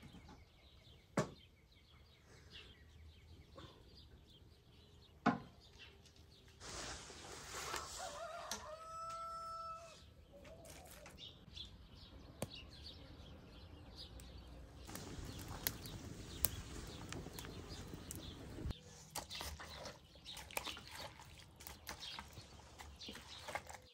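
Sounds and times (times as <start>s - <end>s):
rooster crowing: 7.8s - 10.0s.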